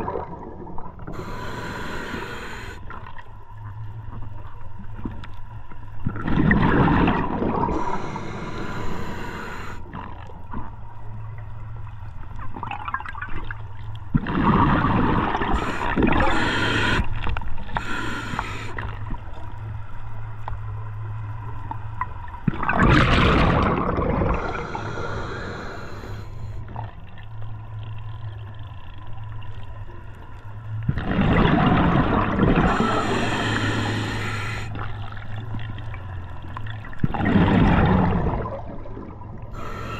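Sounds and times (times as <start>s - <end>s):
diver exhaling bubbles underwater: 0.0s - 2.8s, 6.1s - 10.1s, 14.2s - 17.1s, 22.5s - 26.3s, 30.9s - 34.9s, 37.0s - 39.9s
low hum: 0.2s - 6.1s, 7.7s - 9.9s, 23.5s - 30.9s
regulator breathing: 1.1s - 2.8s, 7.7s - 9.9s, 15.5s - 17.1s, 17.7s - 18.9s, 24.3s - 26.6s, 32.6s - 34.8s, 39.6s - 39.9s.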